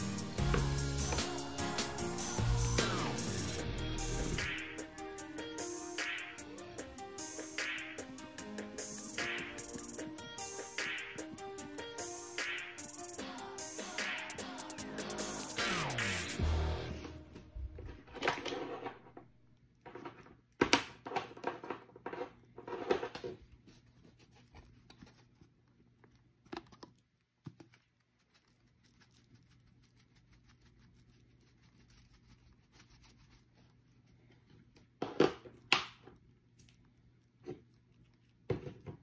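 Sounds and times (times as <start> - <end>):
plastic crinkling: 23.5 - 35.6.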